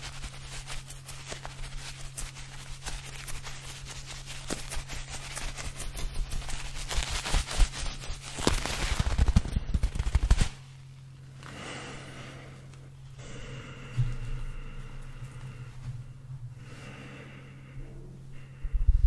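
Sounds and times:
rubbery balls crackling in hands: 0:00.0 - 0:11.9
low steady hum: 0:00.0 - 0:19.0.

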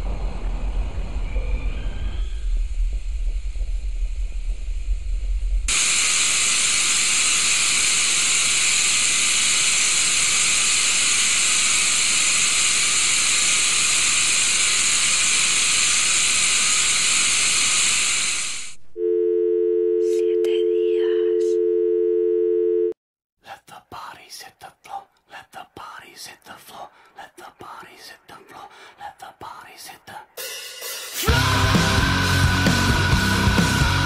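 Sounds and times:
low rumble: 0:00.0 - 0:05.7
two-note telephone tone: 0:19.0 - 0:23.0.

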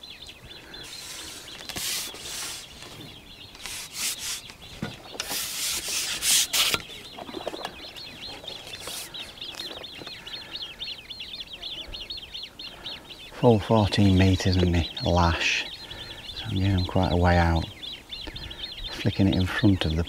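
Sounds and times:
birds chirping: 0:00.0 - 0:20.0
rubbing and rustling on microphone: 0:00.8 - 0:10.1.

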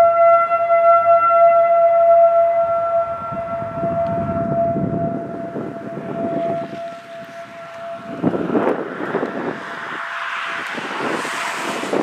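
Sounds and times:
rotating siren single tone: 0:00.0 - 0:12.0.

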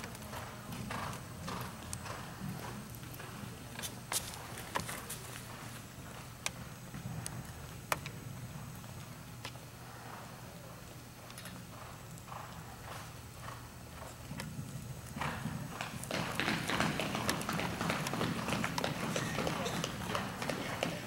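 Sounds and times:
horse hoofbeats on sand: 0:00.0 - 0:03.6, 0:11.7 - 0:21.0
steady low hum: 0:00.0 - 0:21.0.

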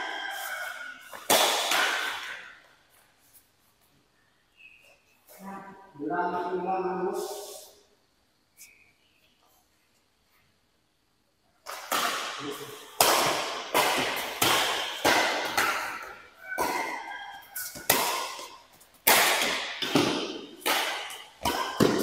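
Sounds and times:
rackets hitting shuttlecock: 0:00.3 - 0:03.0, 0:11.6 - 0:22.0.

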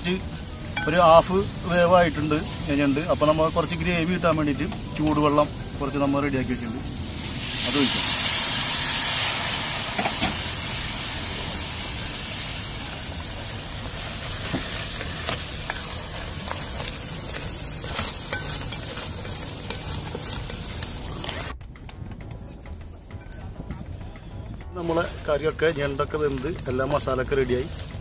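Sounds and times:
crab sizzling in metal pan: 0:00.0 - 0:21.6, 0:22.7 - 0:28.0
wooden spatula stirring and scraping: 0:13.0 - 0:21.6, 0:24.1 - 0:28.0.

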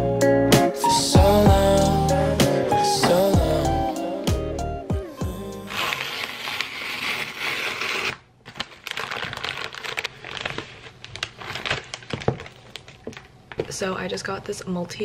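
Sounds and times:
cardboard ripping: 0:05.6 - 0:12.5
paper and plastic crinkling: 0:05.7 - 0:13.8.

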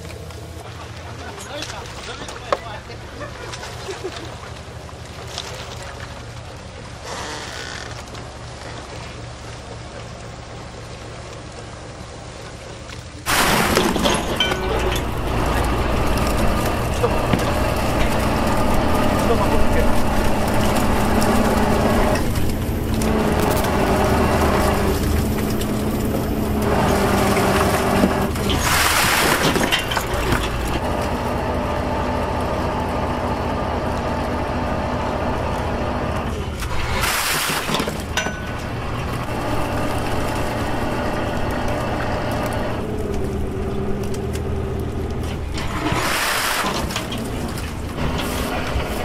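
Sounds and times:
boat engine running: 0:00.0 - 0:49.0
oyster shells crashing down: 0:13.3 - 0:16.2.

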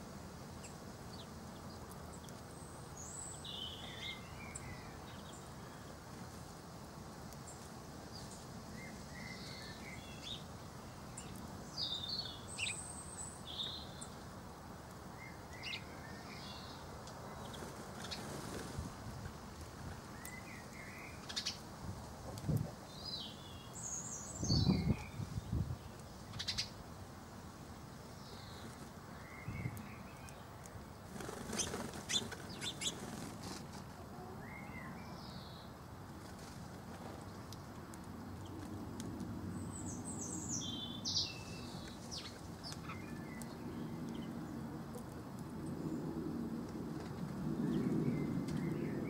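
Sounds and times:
songbirds chirping: 0:00.0 - 0:49.0
wing flapping: 0:31.1 - 0:33.9.

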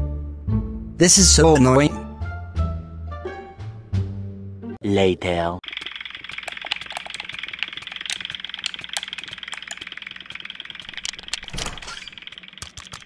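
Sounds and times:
controller clicks and taps: 0:05.6 - 0:11.5, 0:12.2 - 0:13.0.

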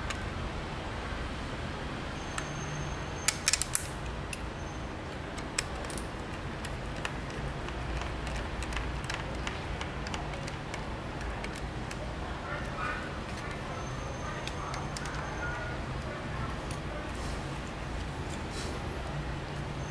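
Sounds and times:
steady background noise: 0:00.0 - 0:19.9
sharp clicks of small parts: 0:03.2 - 0:04.5, 0:05.1 - 0:12.0.

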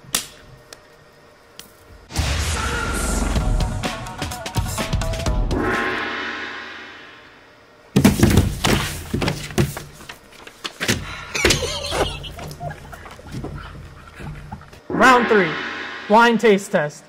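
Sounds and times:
loud thumps and knocks: 0:08.0 - 0:09.8.

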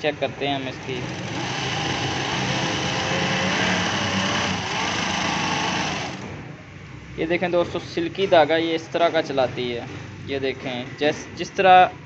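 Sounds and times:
sewing machine whirring: 0:00.0 - 0:06.5.

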